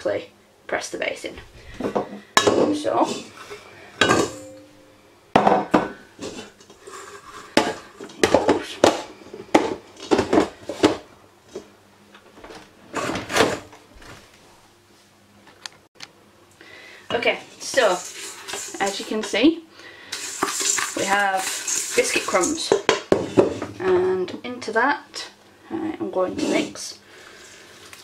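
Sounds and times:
biscuits clattering into metal bowl: 20.1 - 23.7.

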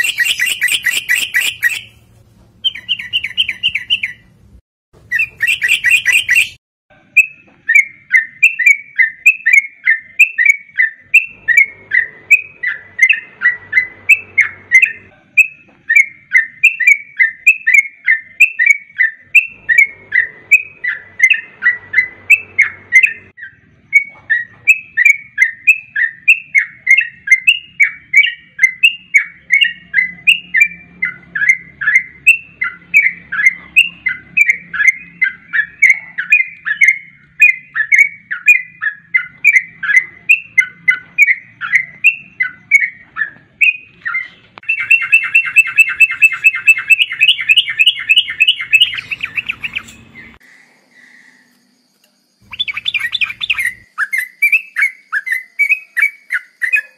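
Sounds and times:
bird chattering calls: 0.0 - 2.0, 2.6 - 4.3, 5.0 - 6.6, 7.7 - 51.6, 52.4 - 56.9
bird bubbly chirps: 41.2 - 51.5, 52.4 - 56.9.

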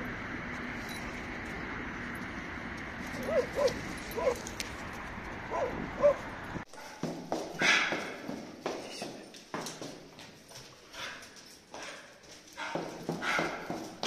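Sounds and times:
dog yipping: 3.2 - 4.5, 5.5 - 6.2.

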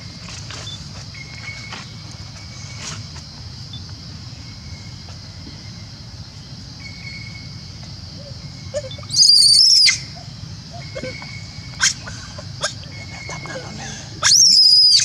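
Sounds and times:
infant monkey crying: 8.2 - 15.0.

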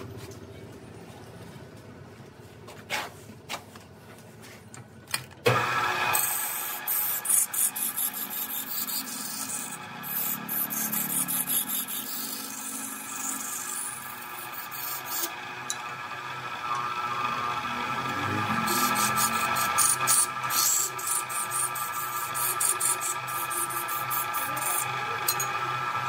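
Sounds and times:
wood lathe scraping with hiss: 5.5 - 26.0.

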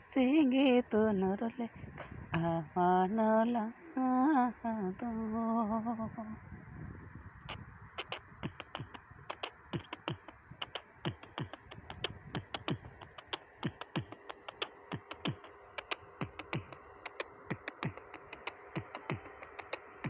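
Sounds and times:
beatboxing clicks and thumps: 7.5 - 20.0.

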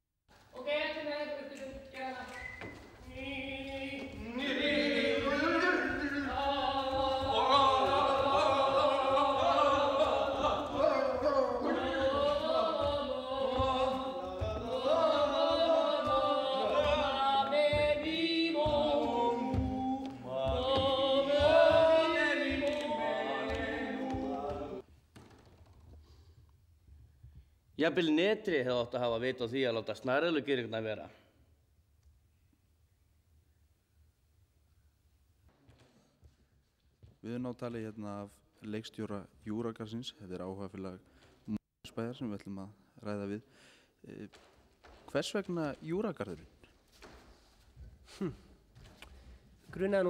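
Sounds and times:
choir singing with music: 3.0 - 24.9.

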